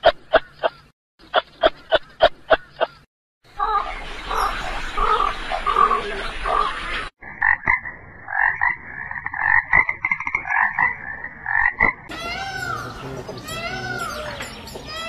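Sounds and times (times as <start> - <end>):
frog croaking: 5.7 - 12.1.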